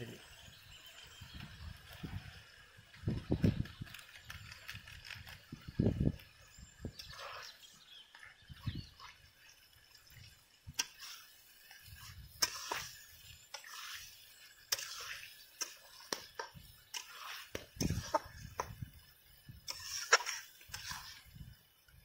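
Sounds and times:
soft frying sizzle: 0:00.0 - 0:22.0
metal spatula scraping pan: 0:10.8 - 0:18.5, 0:19.7 - 0:21.3.

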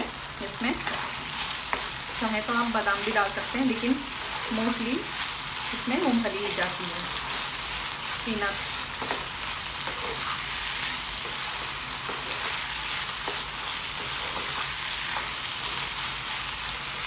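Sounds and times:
food sizzling in oil: 0:00.0 - 0:17.0
wooden spatula scraping pan: 0:06.4 - 0:15.9.

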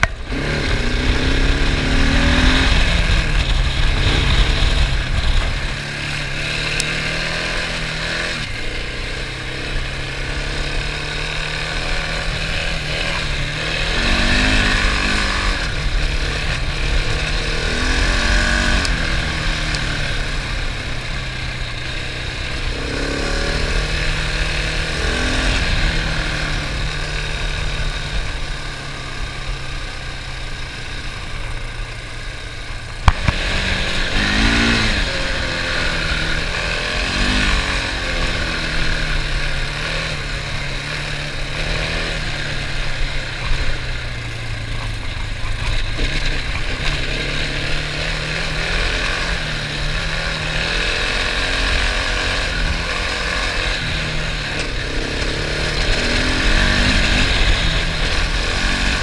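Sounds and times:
motorcycle engine revving: 0:00.0 - 0:59.0.

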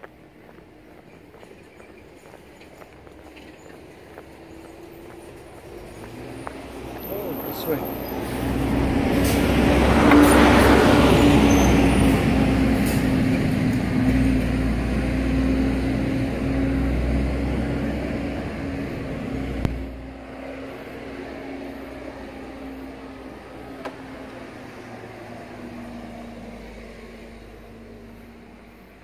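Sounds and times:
large vehicle engine running: 0:02.4 - 0:29.0.

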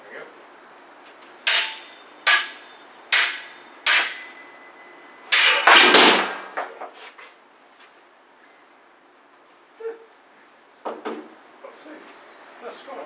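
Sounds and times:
sabre blades clashing: 0:01.5 - 0:04.4, 0:05.3 - 0:06.2.

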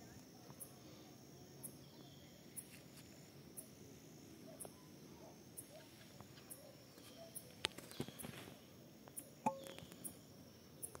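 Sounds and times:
insect chirping: 0:00.0 - 0:11.0
faint bird notes: 0:09.4 - 0:10.2.

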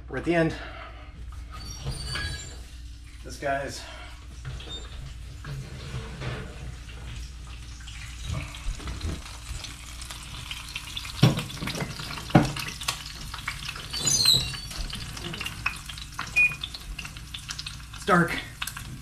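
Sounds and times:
short high squeal: 0:01.5 - 0:02.7, 0:13.9 - 0:14.8
meat sizzling in a skillet: 0:07.8 - 0:19.0.

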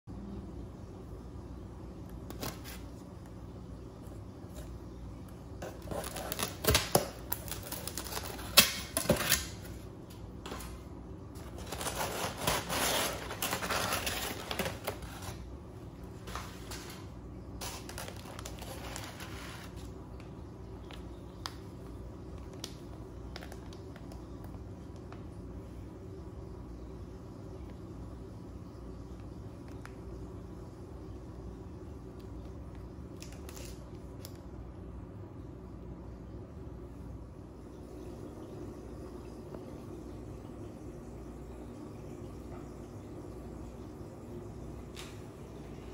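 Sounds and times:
plastic bag handling: 0:05.6 - 0:15.5, 0:16.1 - 0:20.0
packing paper crinkling: 0:05.6 - 0:21.5, 0:33.1 - 0:34.4.

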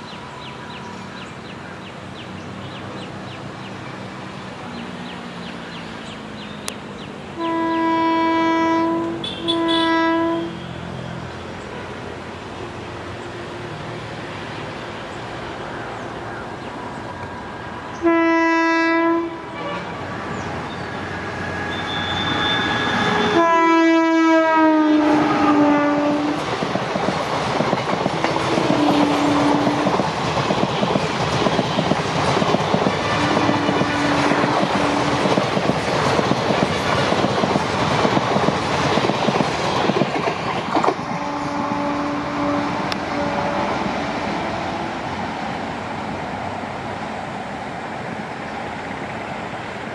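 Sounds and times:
locomotive horn blasts: 0:07.4 - 0:11.1, 0:18.0 - 0:20.1, 0:21.6 - 0:26.4, 0:28.3 - 0:29.9, 0:33.1 - 0:35.4, 0:41.1 - 0:44.2
train wheels rumbling and clacking: 0:25.1 - 0:47.0.

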